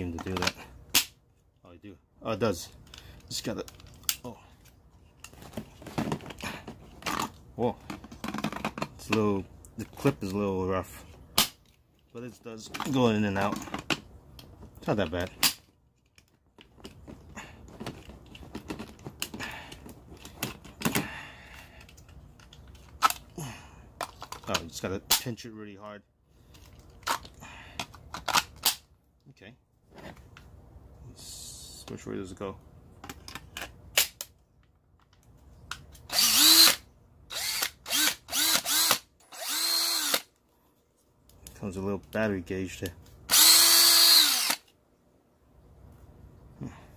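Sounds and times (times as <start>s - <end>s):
cordless drill motor whining: 36.1s - 40.3s, 43.3s - 44.7s.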